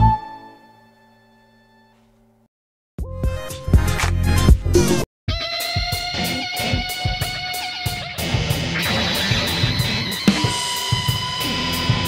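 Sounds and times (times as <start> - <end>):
rock music with drums: 3.0 - 12.0.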